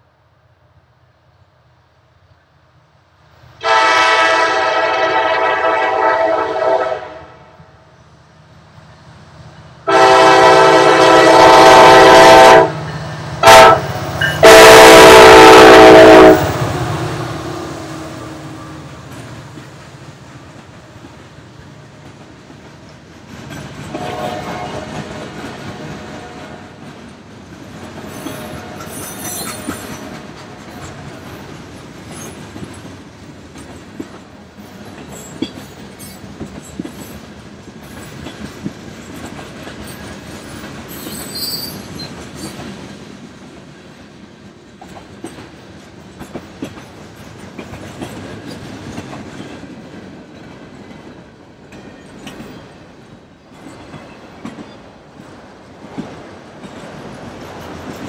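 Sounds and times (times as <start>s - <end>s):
train air horn blasts: 3.6s - 7.6s, 9.8s - 19.0s, 23.9s - 26.8s, 28.3s - 29.3s
train wheels clattering over rail joints: 19.0s - 43.7s, 44.3s - 52.8s.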